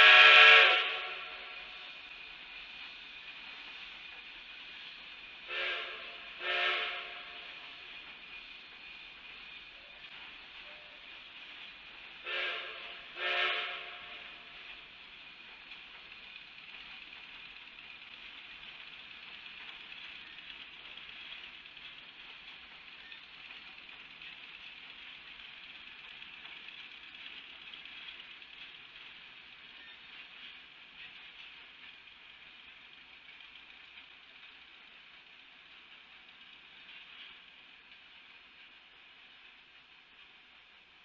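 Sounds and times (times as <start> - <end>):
steam locomotive whistle blasts: 0.0 - 1.8, 5.5 - 7.7, 12.2 - 14.5
steady steam hiss: 0.0 - 41.0.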